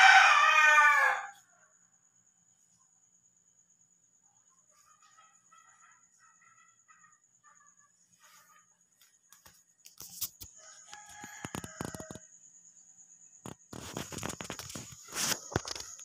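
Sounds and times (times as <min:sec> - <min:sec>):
rooster crowing: 0:00.0 - 0:01.5, 0:10.6 - 0:12.3
water splashing and scraping: 0:13.7 - 0:16.0.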